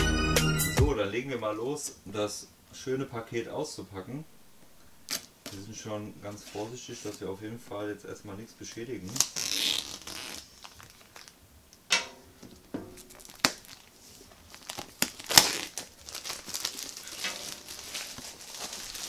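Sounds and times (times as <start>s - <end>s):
plastic wrap crinkling and tearing: 5.0s - 5.6s, 9.0s - 11.4s, 12.4s - 19.0s.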